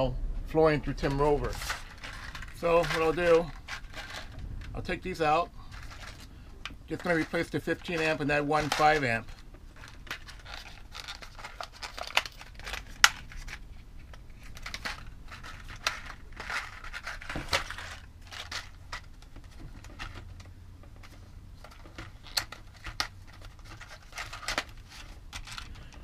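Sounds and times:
plastic crinkling and tearing: 0:05.7 - 0:20.3, 0:21.0 - 0:26.0.

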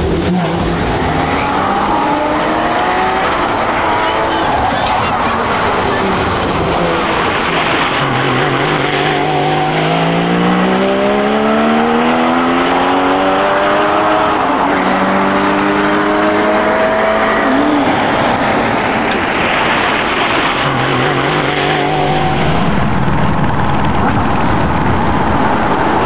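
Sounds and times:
car engine pulling hard: 0:00.0 - 0:26.0
wind and road noise: 0:00.0 - 0:26.0.

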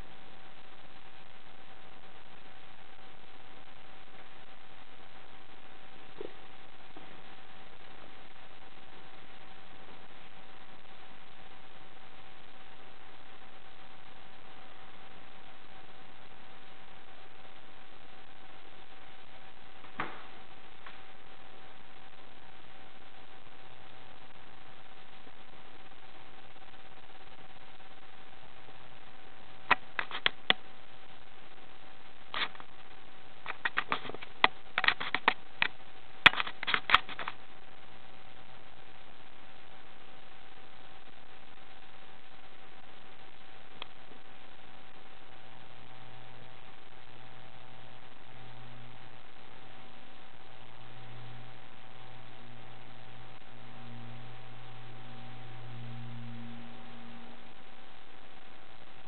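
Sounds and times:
faint steady tone: 0:00.0 - 0:59.0
low electrical hum: 0:00.0 - 0:59.0
recording hiss: 0:00.0 - 0:59.0.

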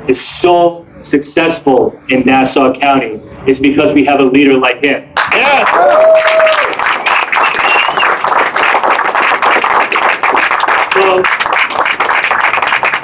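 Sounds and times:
crowd clapping: 0:05.2 - 0:13.0.

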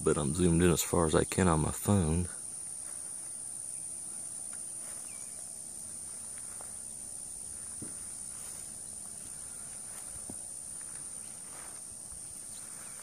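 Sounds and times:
high-pitched insect chorus: 0:00.0 - 0:13.0
faint ticks: 0:04.4 - 0:04.7.

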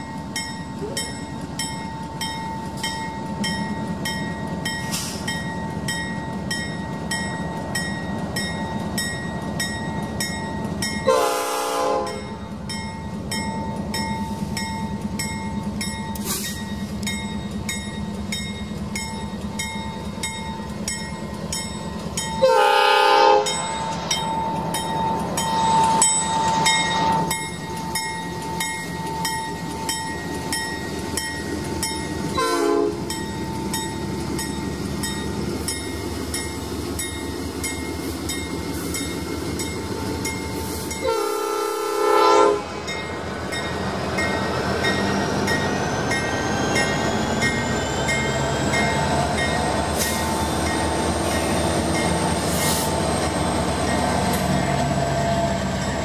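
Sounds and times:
diesel locomotive engines: 0:00.0 - 0:56.0
train air horn: 0:11.1 - 0:12.4, 0:22.4 - 0:23.6, 0:32.4 - 0:33.0, 0:41.0 - 0:42.8.

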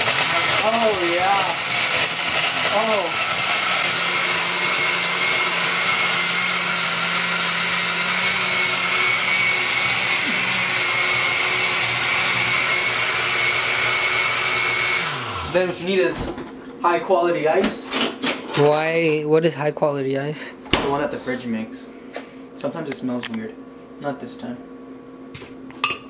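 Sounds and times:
blender running: 0:00.0 - 0:16.0.

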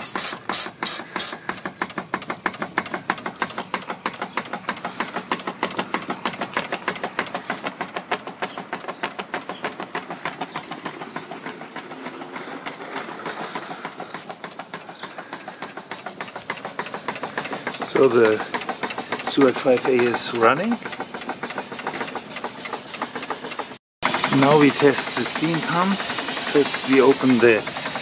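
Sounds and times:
steam hissing: 0:00.0 - 0:07.9, 0:08.6 - 0:28.0
steam engine beats: 0:00.0 - 0:28.0.

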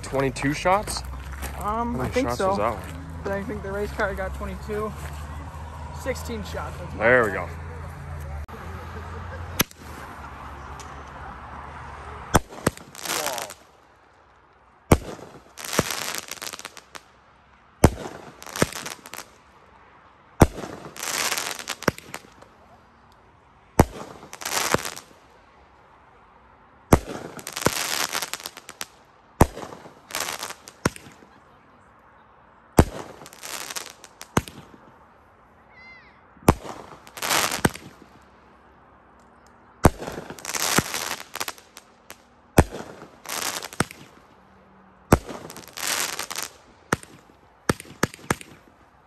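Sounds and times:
firework bursts overhead: 0:08.5 - 0:17.2, 0:17.8 - 0:19.8, 0:20.4 - 0:22.8, 0:23.7 - 0:25.7, 0:26.9 - 0:31.6, 0:32.7 - 0:35.1, 0:36.4 - 0:38.4, 0:39.8 - 0:49.0.

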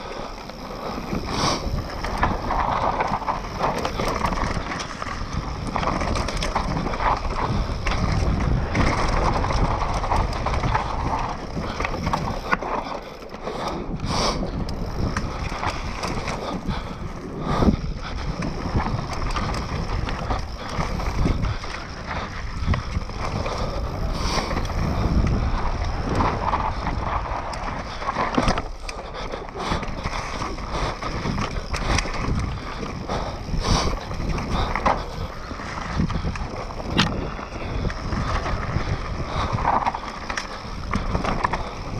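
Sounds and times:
tyres crunching over dirt and stones: 0:00.0 - 0:13.5
bike rattling and knocking: 0:00.0 - 0:41.9.

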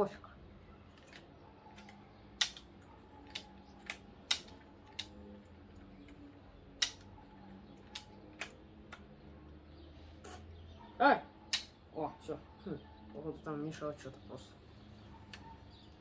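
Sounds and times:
plastic lever mechanism clicking: 0:00.9 - 0:05.2.

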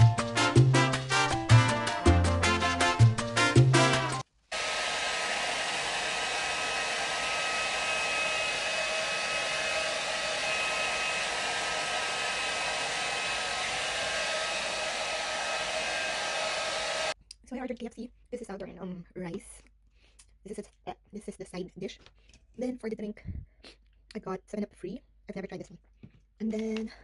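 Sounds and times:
background music: 0:00.0 - 0:04.2
hair dryer running: 0:04.5 - 0:17.2.

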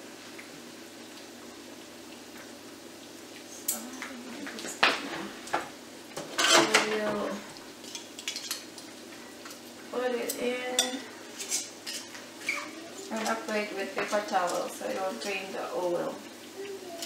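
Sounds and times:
metal utensils clinking on a skillet: 0:06.2 - 0:15.6.

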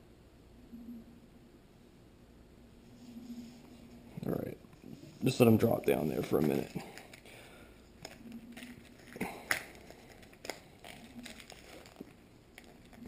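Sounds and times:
plastic packet crinkling: 0:05.6 - 0:13.0.

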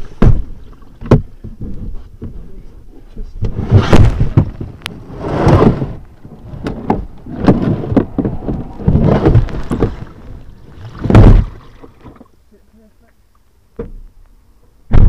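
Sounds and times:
water splashing and rushing: 0:00.0 - 0:02.0, 0:03.4 - 0:12.4
paddle knocking against boat: 0:00.0 - 0:02.5, 0:05.4 - 0:12.3.

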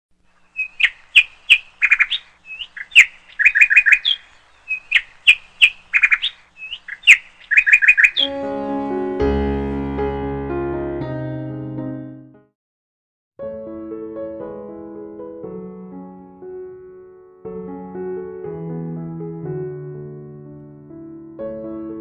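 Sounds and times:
bird chirping: 0:00.2 - 0:08.3
piano music: 0:08.1 - 0:12.5, 0:13.4 - 0:22.0.

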